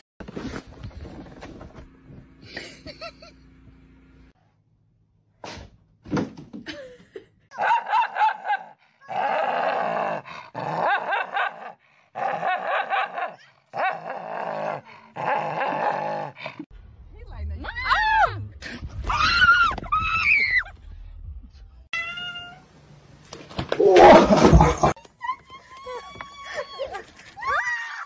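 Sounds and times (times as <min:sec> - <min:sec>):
dog barking and growling: 0:07.5 - 0:16.6.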